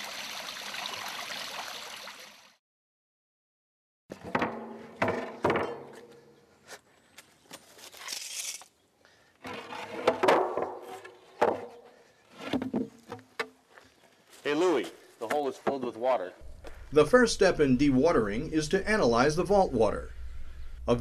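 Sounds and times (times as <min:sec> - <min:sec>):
metal clanks and knocks: 0:04.1 - 0:06.3.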